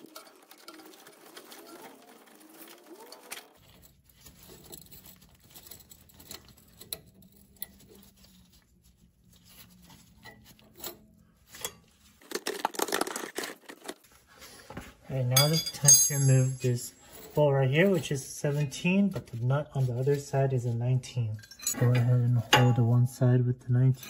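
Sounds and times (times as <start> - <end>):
tools clicking and knocking: 15.4 - 16.8.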